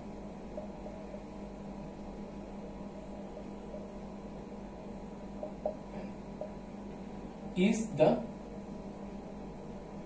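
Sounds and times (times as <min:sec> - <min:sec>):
low electrical hum: 0:00.0 - 0:10.0
room hiss: 0:00.0 - 0:10.0.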